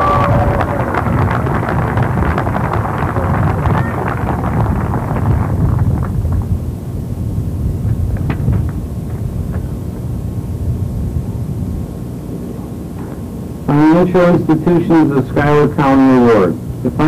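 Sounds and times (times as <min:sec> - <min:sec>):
wind buffeting microphone: 0:00.0 - 0:13.4.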